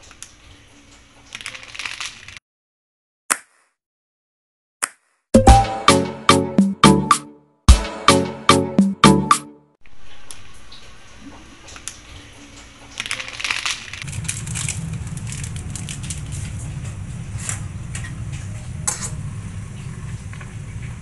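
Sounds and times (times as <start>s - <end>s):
plastic packet crinkling: 1.3s - 2.4s, 12.9s - 16.7s
pot boiling hard: 13.9s - 18.3s.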